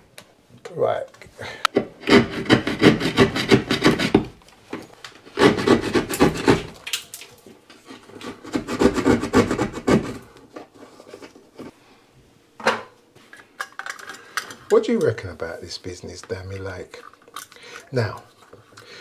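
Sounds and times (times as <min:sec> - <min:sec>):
hand tool rasping on hard surface: 0:02.0 - 0:04.3, 0:05.4 - 0:06.7.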